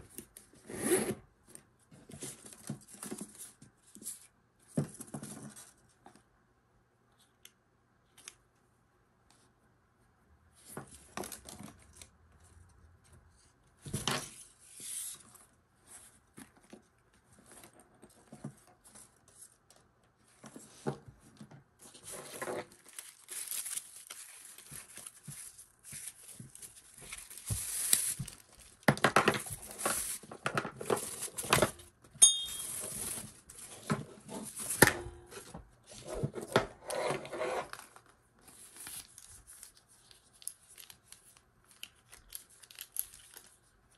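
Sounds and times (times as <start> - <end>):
plastic wrapping crinkling and tearing: 21.9 - 31.6, 37.7 - 43.9.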